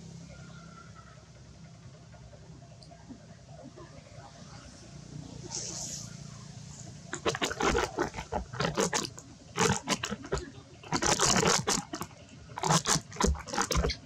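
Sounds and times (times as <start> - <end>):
monkey chewing crunchy food: 7.1 - 14.0.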